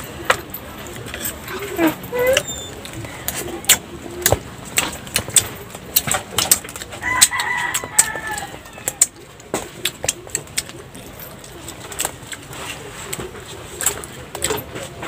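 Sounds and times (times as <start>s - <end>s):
clicks and smacks of eating: 2.4s - 15.0s
rooster crowing: 7.0s - 9.2s.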